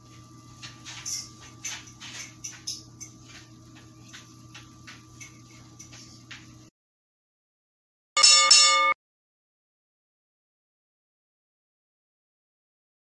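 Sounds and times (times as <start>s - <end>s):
steady low hum: 0.0s - 6.7s.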